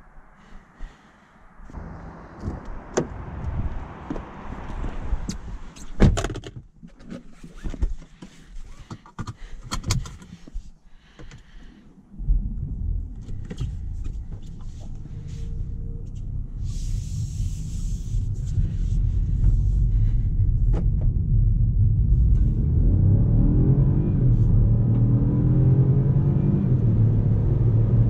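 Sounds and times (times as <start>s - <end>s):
car engine starting and running: 0.0s - 6.7s, 11.2s - 28.0s
car door shutting: 5.8s - 6.6s.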